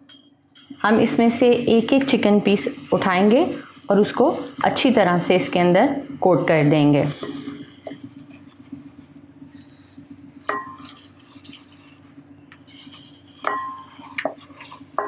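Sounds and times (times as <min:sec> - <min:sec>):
clinks against glass bowl: 0:00.0 - 0:00.8.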